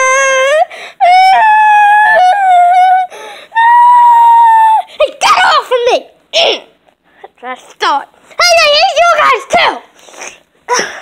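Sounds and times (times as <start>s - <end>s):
young child crying: 0.0s - 5.0s
child breathing: 0.7s - 1.0s, 3.1s - 3.6s.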